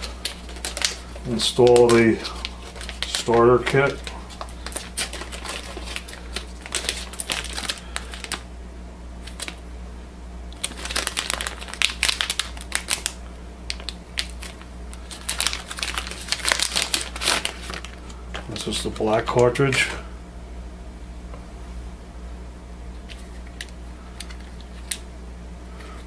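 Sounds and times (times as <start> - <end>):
plastic packaging crinkling: 0.0 - 8.5, 9.2 - 9.6, 10.5 - 20.0, 23.0 - 25.0.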